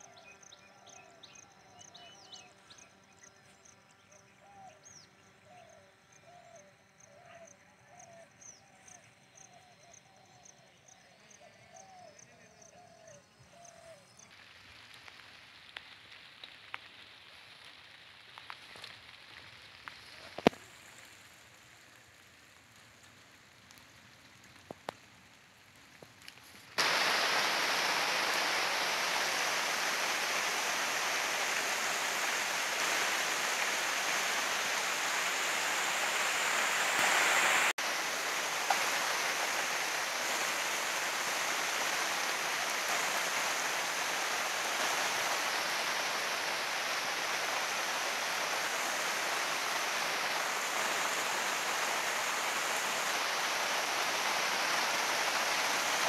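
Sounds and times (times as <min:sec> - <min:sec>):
small ticks: 0:22.6 - 0:26.6
running water rushing: 0:26.8 - 0:56.0.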